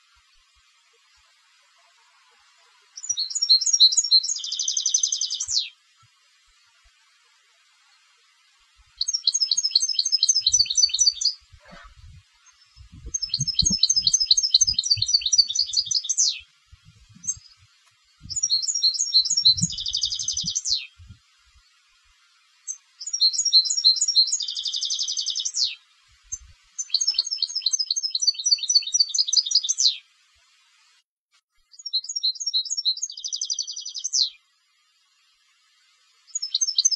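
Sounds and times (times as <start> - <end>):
goldfinch twittering song: 3.0 - 5.8, 9.0 - 21.2, 22.7 - 30.0, 31.7 - 34.4, 36.3 - 36.9.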